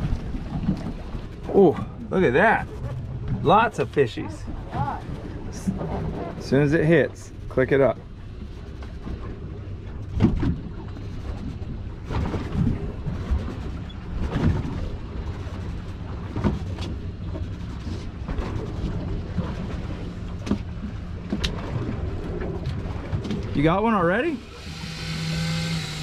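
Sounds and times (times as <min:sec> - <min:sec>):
boat engine idling: 0:00.0 - 0:26.0
knocks against hull: 0:10.1 - 0:10.7, 0:20.4 - 0:21.8.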